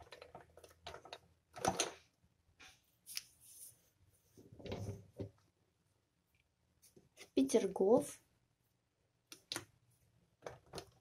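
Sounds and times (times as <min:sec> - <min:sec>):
fridge magnets clicking and knocking: 0:00.0 - 0:02.1, 0:09.3 - 0:11.0.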